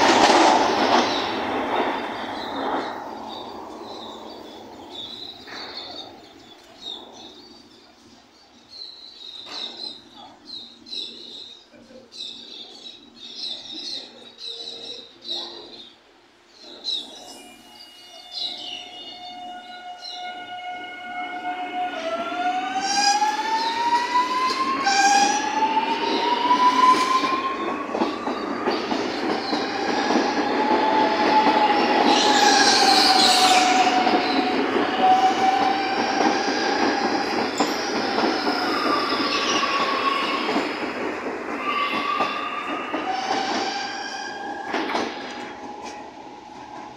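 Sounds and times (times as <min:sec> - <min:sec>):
train wheels rumbling on rails: 0:00.0 - 0:17.3, 0:18.4 - 0:46.9.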